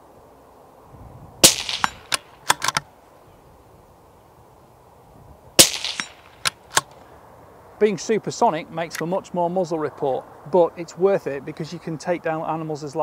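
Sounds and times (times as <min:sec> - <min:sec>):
rifle shots: 0:01.4 - 0:02.8, 0:05.6 - 0:06.9
rifle bolt metallic clicks: 0:01.4 - 0:02.9, 0:05.6 - 0:07.0.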